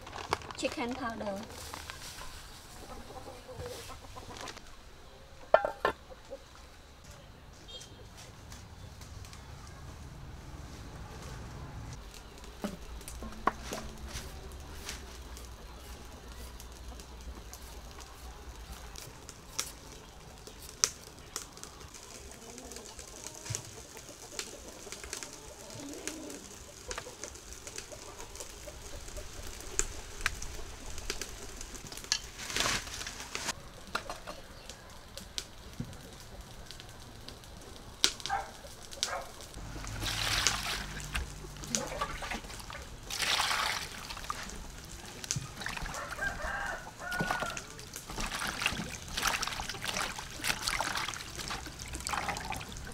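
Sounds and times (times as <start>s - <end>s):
chickens clucking: 1.6s - 7.1s, 21.6s - 31.1s, 33.5s - 34.8s, 38.3s - 52.9s
water splashing in metal bowl: 39.7s - 52.9s
rooster crowing: 45.7s - 47.8s.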